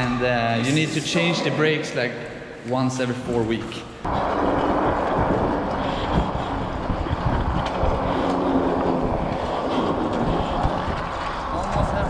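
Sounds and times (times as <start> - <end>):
wind buffeting microphone: 4.0 - 12.0.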